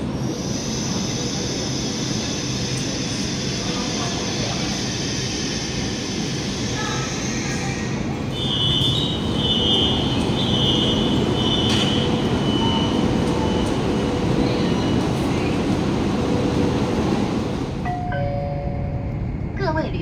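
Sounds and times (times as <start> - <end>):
echoing train rumble: 0.0 - 20.0.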